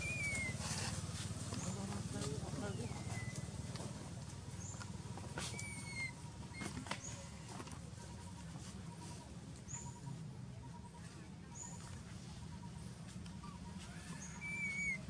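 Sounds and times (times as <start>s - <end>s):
low outdoor rumble: 0.0s - 15.0s
falling whistled call: 14.2s - 15.0s.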